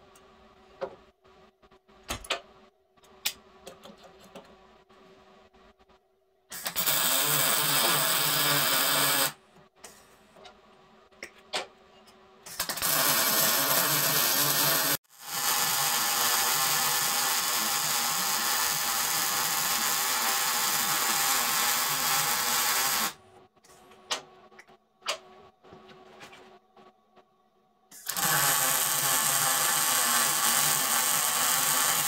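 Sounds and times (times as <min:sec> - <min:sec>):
welder arc hissing: 0:06.5 - 0:09.4, 0:12.5 - 0:23.2, 0:27.9 - 0:32.0.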